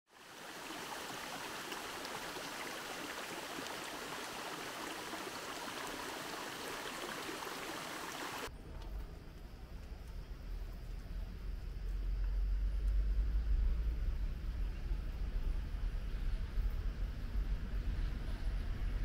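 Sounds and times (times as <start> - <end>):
running water rushing: 0.1 - 8.5
low rumble: 8.5 - 19.0.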